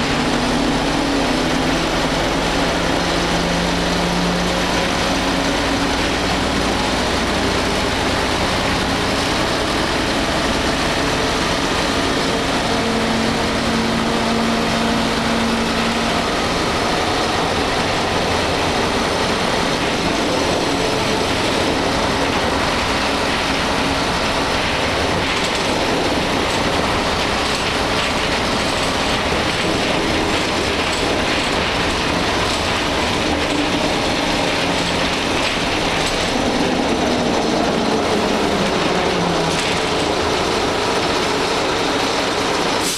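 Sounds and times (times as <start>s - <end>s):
bus body rattling: 0.0s - 42.9s
bus diesel engine running: 0.0s - 42.9s
road noise: 0.0s - 42.9s.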